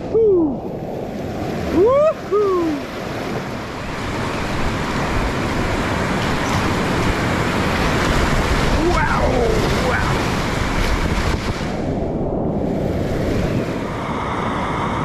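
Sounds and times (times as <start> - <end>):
person whooping: 0.0 - 0.6, 1.7 - 2.8
whitewater rapids rushing: 1.6 - 11.9.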